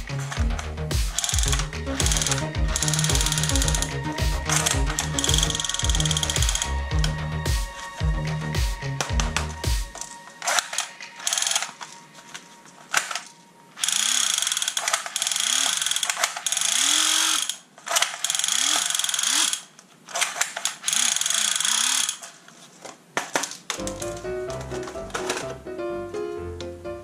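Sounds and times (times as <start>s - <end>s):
toy gun firing automatic bursts: 1.1s - 3.9s, 4.5s - 6.7s, 10.4s - 11.8s, 13.8s - 22.3s
clicks of gun being handled: 9.0s - 13.4s.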